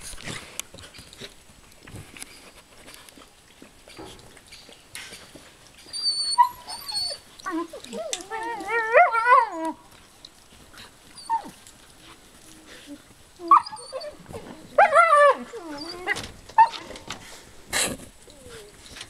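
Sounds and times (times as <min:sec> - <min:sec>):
puppies yelping: 0:05.8 - 0:09.8, 0:11.0 - 0:11.6, 0:13.4 - 0:17.0
puppies yowling: 0:05.8 - 0:10.1, 0:11.0 - 0:11.7, 0:13.4 - 0:16.9.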